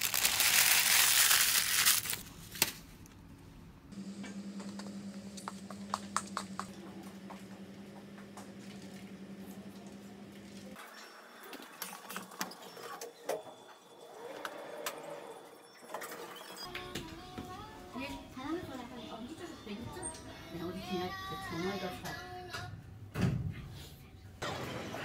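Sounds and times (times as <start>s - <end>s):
low machine hum: 3.0s - 10.8s.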